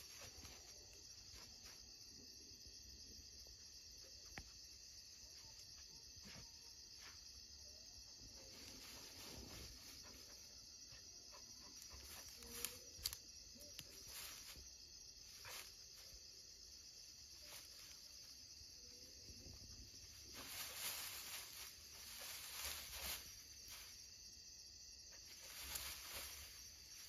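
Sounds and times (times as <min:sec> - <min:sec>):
grass rustling: 0:00.0 - 0:02.0, 0:08.2 - 0:27.0
night insects chirring: 0:00.0 - 0:27.0.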